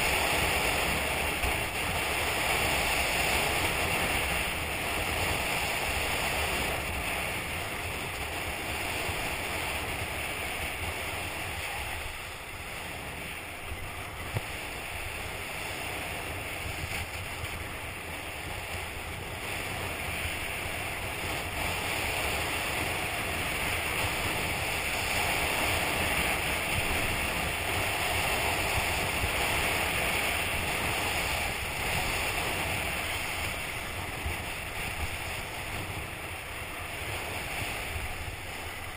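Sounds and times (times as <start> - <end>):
skis scraping over snow: 0.0 - 38.9
wind buffeting microphone: 0.0 - 38.9.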